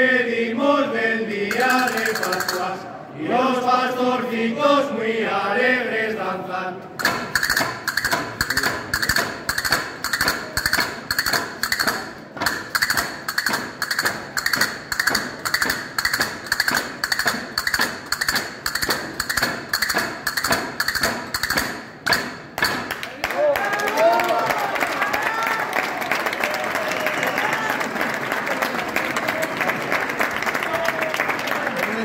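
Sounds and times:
wooden staffs knocking: 7.0 - 23.0.

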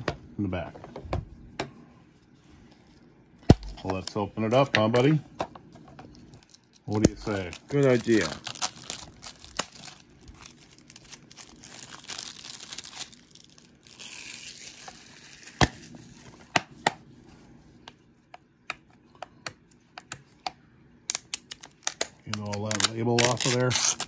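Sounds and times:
cellophane tearing and crinkling: 6.4 - 16.0, 21.1 - 24.0.

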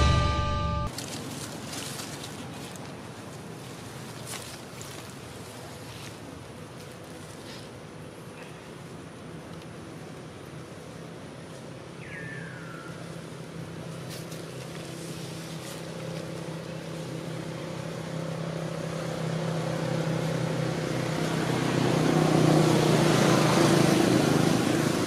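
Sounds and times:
motor engine running: 16.4 - 25.0.

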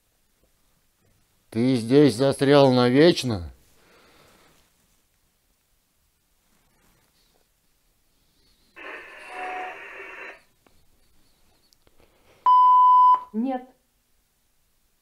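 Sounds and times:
radio static hiss: 8.4 - 11.7.

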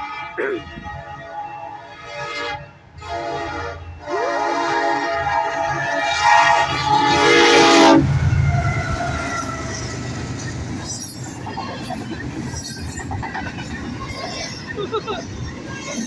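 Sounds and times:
locomotive air horn blast: 0.0 - 10.4
locomotive engine rumble: 2.9 - 16.0
train wheels rolling: 5.6 - 16.0.

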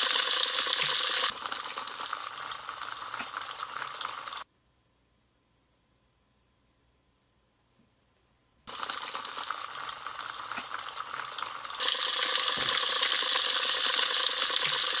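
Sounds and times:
plastic gears whirring: 0.0 - 4.4, 8.7 - 15.0.

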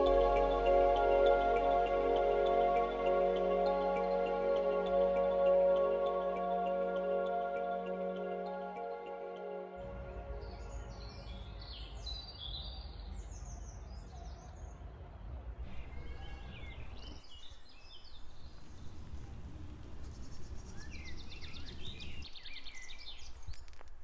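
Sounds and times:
songbirds chirping and trilling: 0.0 - 14.9, 15.6 - 23.9
steady low rumble: 18.0 - 22.4.

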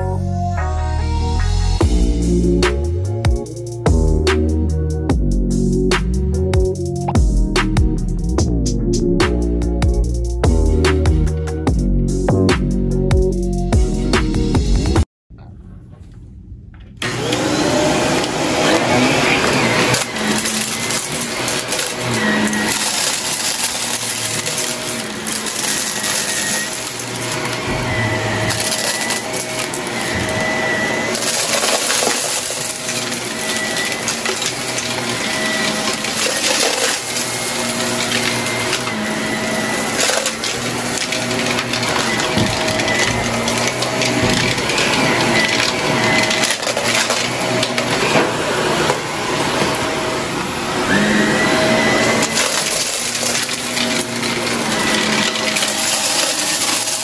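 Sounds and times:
vacuum cleaner running: 17.0 - 57.0
debris crackling and rattling: 19.0 - 48.3, 52.1 - 57.0.

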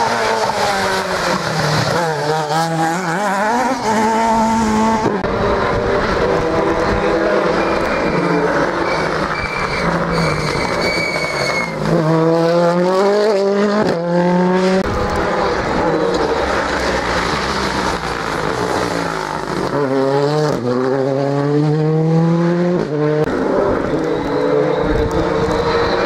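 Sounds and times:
rally car engines revving: 0.0 - 26.0.

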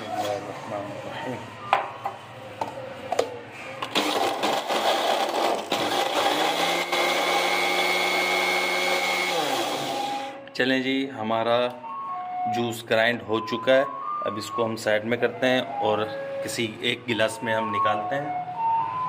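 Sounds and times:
blender motor crushing ice: 3.8 - 10.4.

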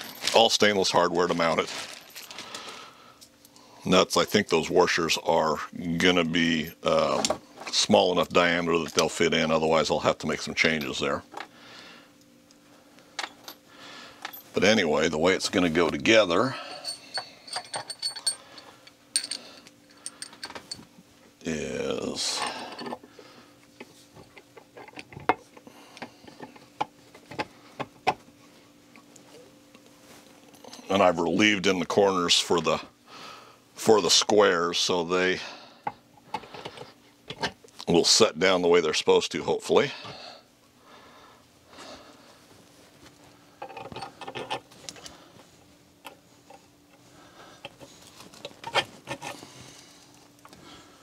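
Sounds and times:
metal parts clicking and knocking: 16.6 - 20.8, 43.6 - 45.1.

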